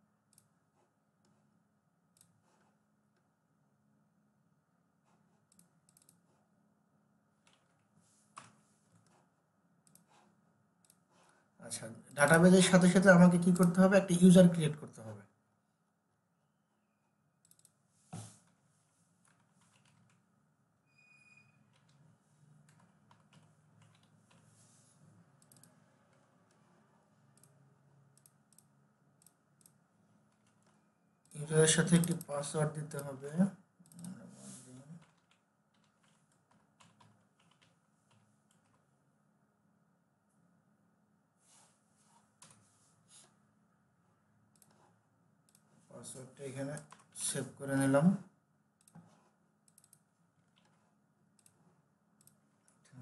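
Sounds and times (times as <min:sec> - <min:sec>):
low room hum: 0:00.0 - 0:53.0
keyboard typing: 0:05.0 - 0:06.4, 0:07.4 - 0:11.3, 0:17.4 - 0:17.8, 0:19.2 - 0:20.3, 0:20.9 - 0:24.6, 0:25.3 - 0:33.2, 0:33.8 - 0:38.9, 0:46.6 - 0:47.4, 0:48.8 - 0:52.8
mouse clicks: 0:05.4 - 0:06.2, 0:09.8 - 0:11.0, 0:17.4 - 0:17.8, 0:25.4 - 0:25.8, 0:27.3 - 0:29.8, 0:30.5 - 0:32.3, 0:44.5 - 0:44.9, 0:48.8 - 0:50.8.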